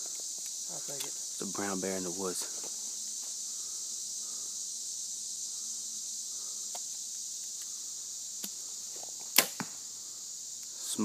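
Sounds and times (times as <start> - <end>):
high-pitched insect chorus: 0.0 - 11.0
bow string snap: 9.4 - 9.8.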